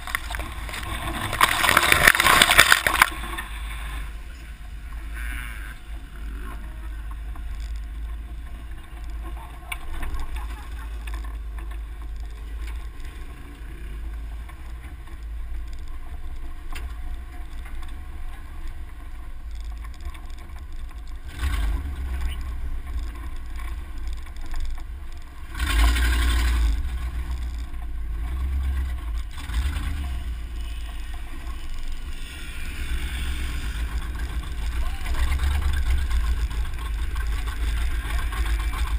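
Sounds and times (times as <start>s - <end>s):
surges of rushing noise: 0.0s - 4.6s
truck engine rumble: 0.0s - 38.9s.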